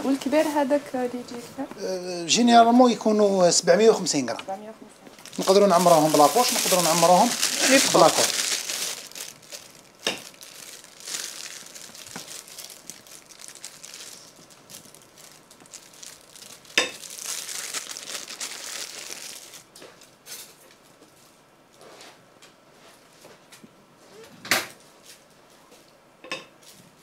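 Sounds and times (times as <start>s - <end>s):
plastic piping bag crinkling: 5.1s - 20.2s.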